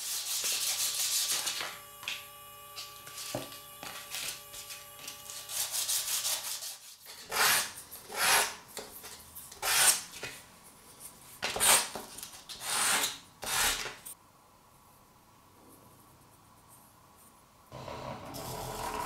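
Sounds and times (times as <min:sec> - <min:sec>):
wood rasping on sandpaper: 0:00.0 - 0:01.6, 0:05.3 - 0:08.5.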